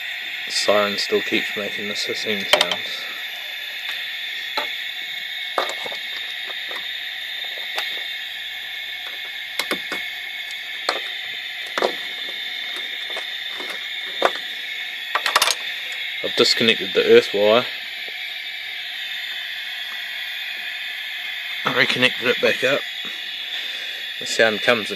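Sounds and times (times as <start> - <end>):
car alarm siren hissing: 0.0 - 24.9.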